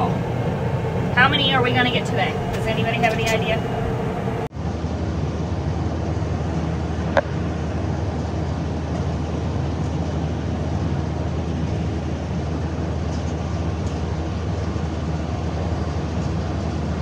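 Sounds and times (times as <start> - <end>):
tractor engine running: 0.0 - 5.0.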